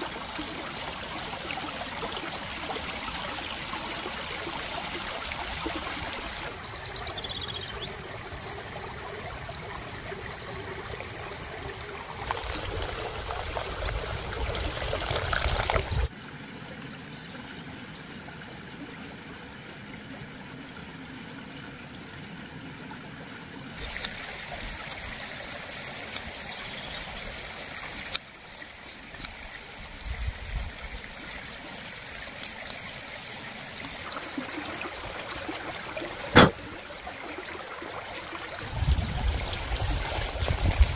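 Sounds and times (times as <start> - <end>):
stream trickling over stones: 0.0 - 40.9.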